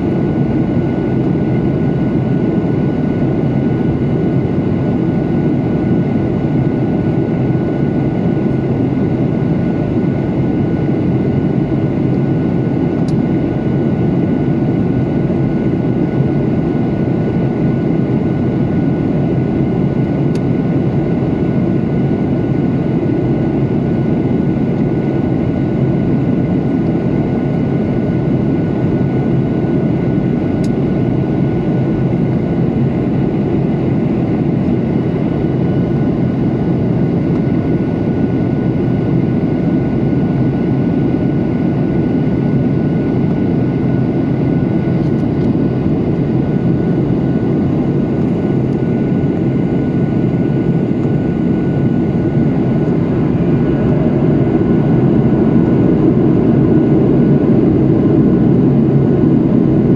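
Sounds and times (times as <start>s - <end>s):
faint engine whine: 0.0s - 59.9s
jet engines and rushing air rumble: 0.0s - 59.9s.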